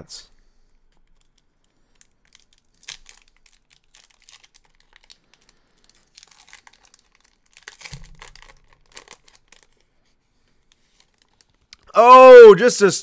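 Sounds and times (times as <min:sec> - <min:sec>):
wrapper tearing and crinkling: 0:00.9 - 0:10.0, 0:10.7 - 0:11.9.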